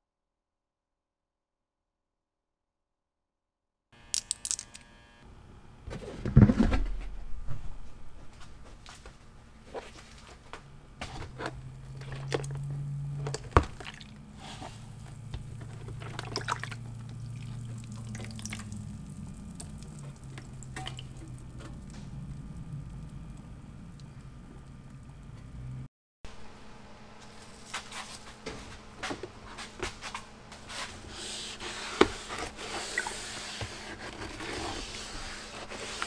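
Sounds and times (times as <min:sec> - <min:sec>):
low steady hum: 0:04.0 - 0:36.0
liquid sloshing in plastic tub: 0:11.2 - 0:12.6, 0:13.2 - 0:22.6
drips and clicks: 0:15.5 - 0:25.5.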